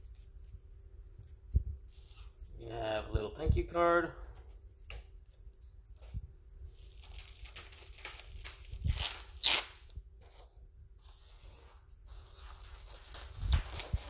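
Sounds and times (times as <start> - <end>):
bubble wrap crinkling: 1.2 - 2.6, 4.7 - 14.0.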